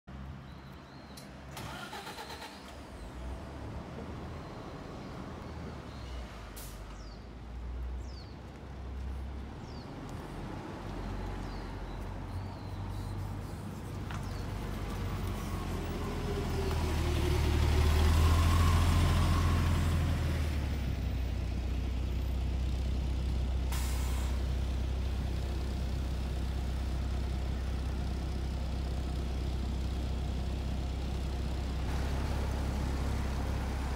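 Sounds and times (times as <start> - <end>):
bus engine running: 0.2 - 33.9
air brake hisses: 23.7 - 24.4.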